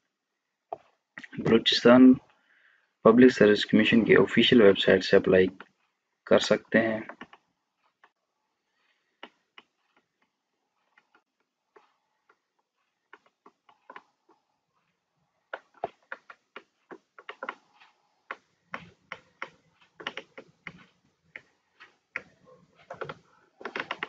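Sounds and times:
mouse scroll wheel clicking: 0:06.8 - 0:24.0.

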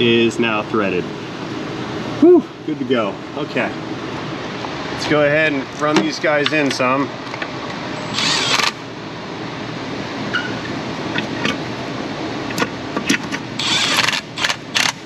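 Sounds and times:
cordless power tool running: 0:08.0 - 0:08.8, 0:13.6 - 0:15.0.

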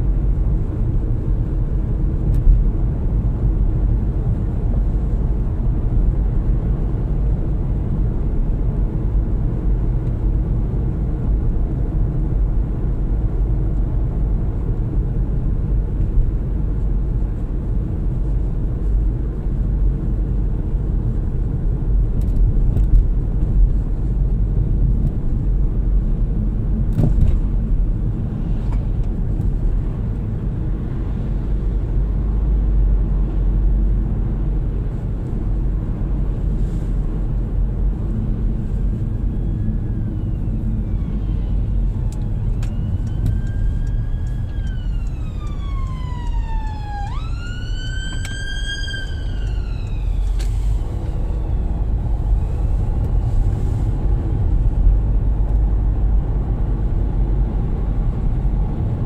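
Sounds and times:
car road and engine rumble: 0:00.0 - 0:59.0.

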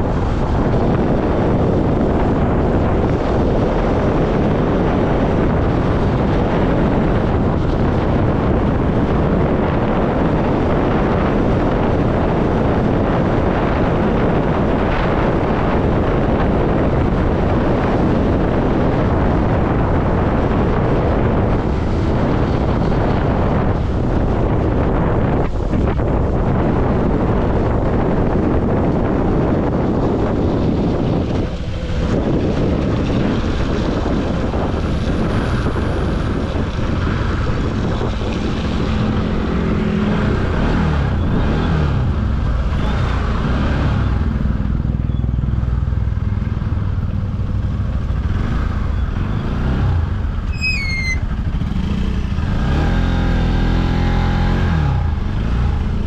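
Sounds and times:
motorcycle engine running: 0:00.0 - 0:41.4, 0:44.0 - 0:56.0
steady low rush: 0:18.7 - 0:41.2
high chirps: 0:50.5 - 0:51.2.

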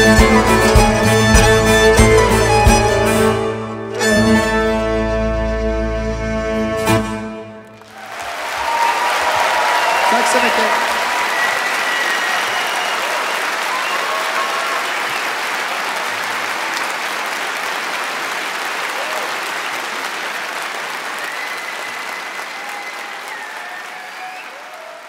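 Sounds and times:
audience applauding: 0:07.6 - 0:25.0
shouts and whistles: 0:07.9 - 0:15.5, 0:21.1 - 0:25.0.

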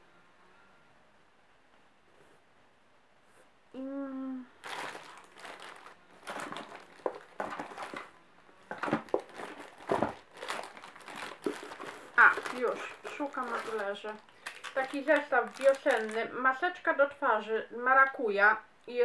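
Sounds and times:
person humming: 0:03.7 - 0:04.6
packaging crinkling: 0:04.6 - 0:16.3.

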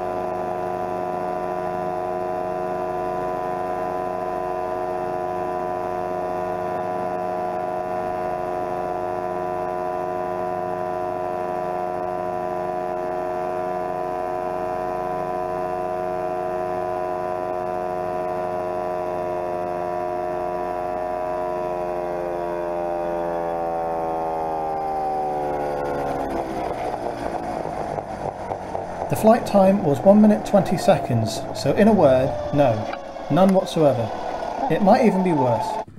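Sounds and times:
model helicopter rotors humming: 0:00.0 - 0:35.9.

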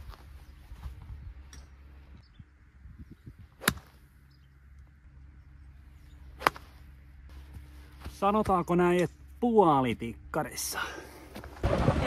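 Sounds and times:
golf club striking ball: 0:03.6 - 0:04.0, 0:06.4 - 0:06.7.

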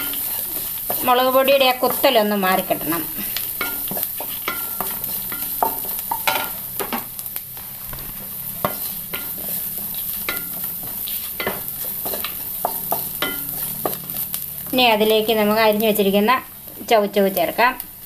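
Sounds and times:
wooden spatula scraping pan: 0:00.0 - 0:14.8
food sizzling in oil: 0:00.0 - 0:18.0
spatula knocking on pan: 0:03.6 - 0:07.1, 0:10.3 - 0:14.1.

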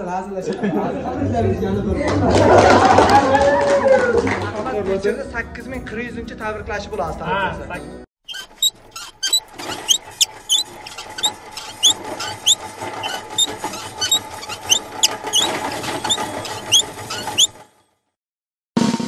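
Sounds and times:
high gliding cartoon squeaks: 0:08.3 - 0:17.6.

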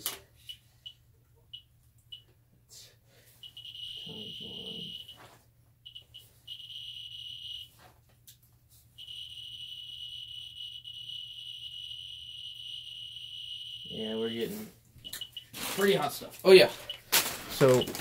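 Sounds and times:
geiger counter chirping: 0:03.4 - 0:05.2, 0:05.8 - 0:07.7, 0:09.0 - 0:14.4, 0:15.0 - 0:15.6, 0:16.6 - 0:18.0.

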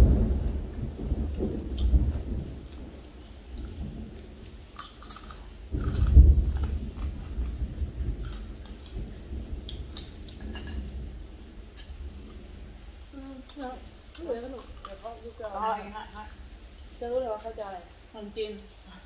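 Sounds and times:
low thunder rumbles: 0:00.0 - 0:19.0
people chewing and sucking: 0:03.6 - 0:07.6, 0:08.2 - 0:09.0
crunching clicks: 0:04.8 - 0:07.4.

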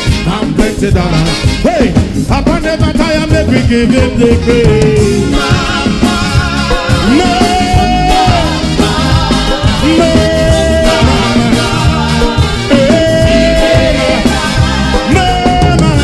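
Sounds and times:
reggae band playing: 0:00.0 - 0:16.0
voices holding long notes: 0:04.2 - 0:16.0.

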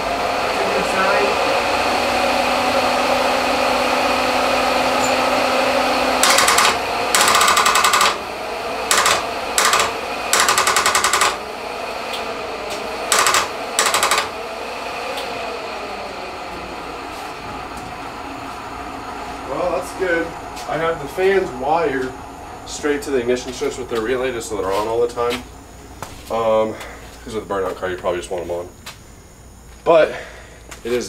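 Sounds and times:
electric fan hum: 0:00.0 - 0:31.0
starter circuit rapid clicking: 0:06.2 - 0:08.2, 0:08.9 - 0:11.4, 0:13.1 - 0:14.4.

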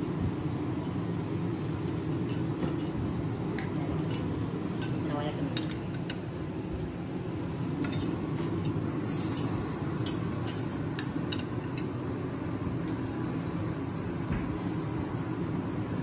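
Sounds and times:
ventilation rumble: 0:00.0 - 0:16.0
plates and utensils clinking: 0:07.8 - 0:11.9.

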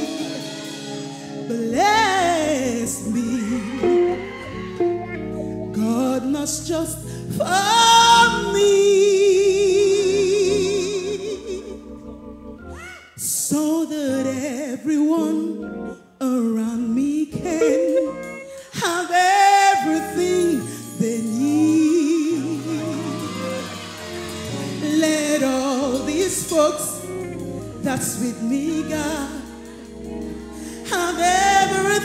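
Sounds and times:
woman singing gospel: 0:00.0 - 0:12.2, 0:13.2 - 0:23.8, 0:24.6 - 0:32.0
organ accompaniment: 0:09.6 - 0:12.8, 0:17.6 - 0:18.9, 0:19.8 - 0:32.0.

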